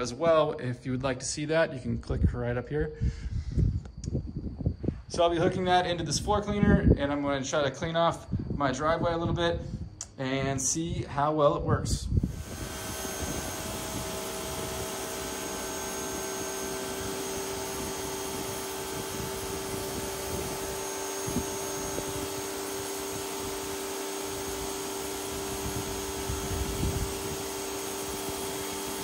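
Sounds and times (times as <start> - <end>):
pressure washer motor hum: 12.2 - 29.0.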